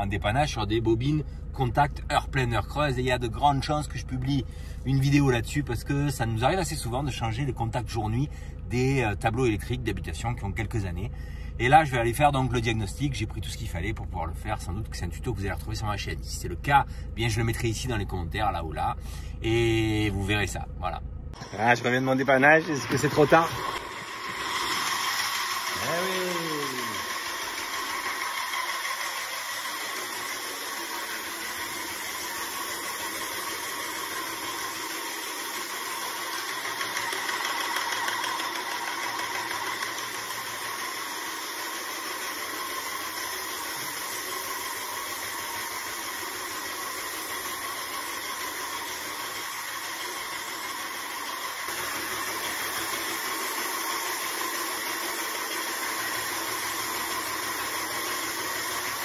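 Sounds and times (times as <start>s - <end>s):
paint sprayer pump whining: 21.4s - 59.0s
paint spray hissing: 23.3s - 59.0s.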